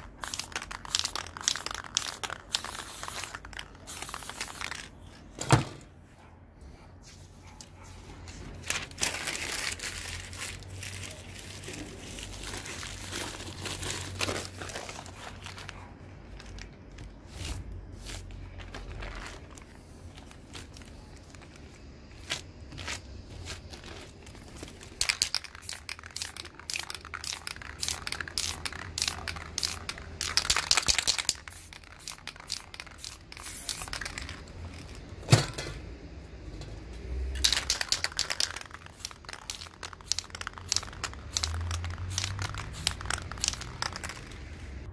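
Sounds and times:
plastic wrapper crinkling: 0.0 - 5.0, 8.6 - 35.0, 37.4 - 44.6
spray can hissing: 0.1 - 4.8, 25.0 - 34.9, 37.4 - 44.7.

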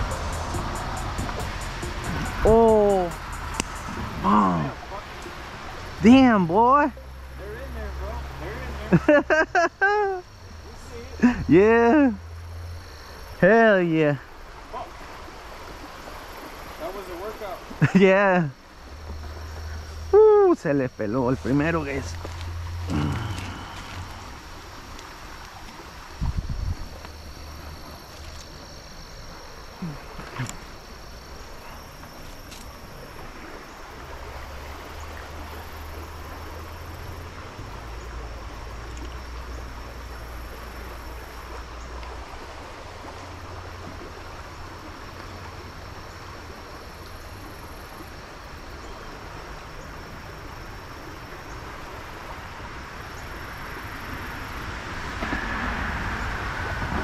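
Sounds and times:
low rumble: 0.0 - 4.6
creek water flowing: 0.0 - 57.0.

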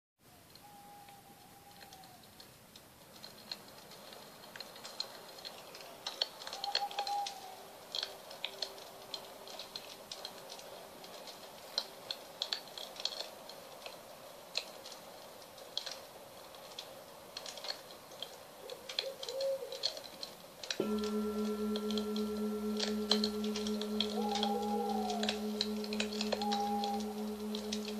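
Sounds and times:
faint short tones: 20.8 - 27.9.

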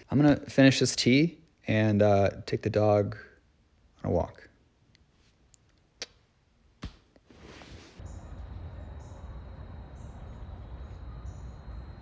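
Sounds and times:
insects buzzing: 8.0 - 12.0.

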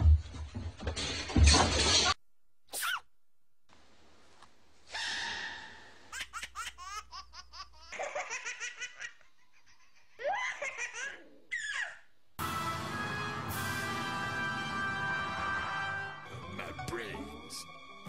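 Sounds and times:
baby laughing: 6.1 - 12.1.

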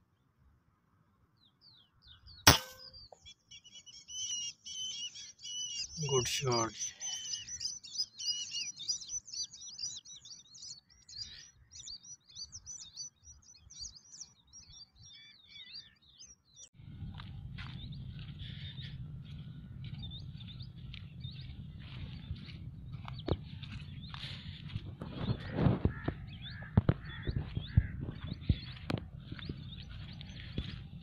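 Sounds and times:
small birds chirping: 1.3 - 31.0
steady low rumble: 16.8 - 31.0.

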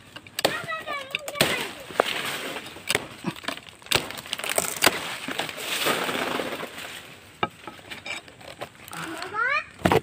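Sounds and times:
palm leaves crackling and rustling: 0.0 - 9.5
blade chopping palm stalk: 0.3 - 7.0.

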